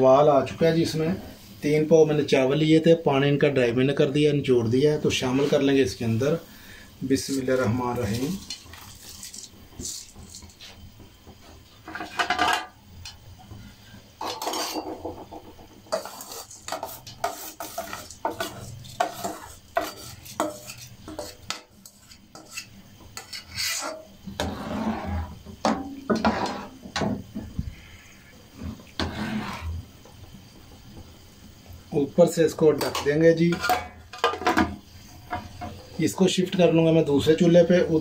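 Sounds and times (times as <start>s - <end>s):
spoon scraping and stirring pot: 5.1s - 13.2s, 14.2s - 27.1s, 28.6s - 29.9s, 32.8s - 35.8s
metal spoon scraping steel bowl: 7.2s - 10.6s, 15.9s - 25.4s.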